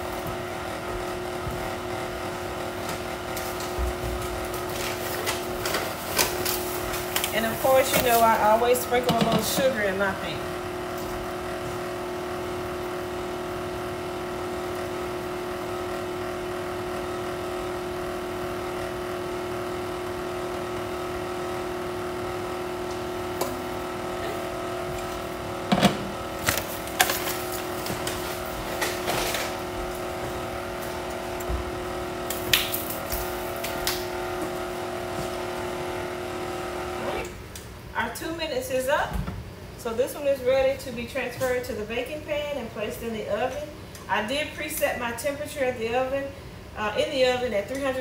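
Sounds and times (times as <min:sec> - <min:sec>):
electric stand mixer running: 0:00.0 - 0:37.4.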